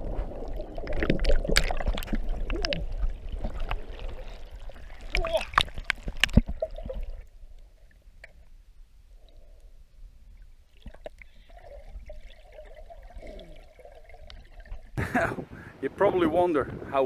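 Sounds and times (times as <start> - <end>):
trickling water: 0.0 - 8.5, 10.3 - 15.0.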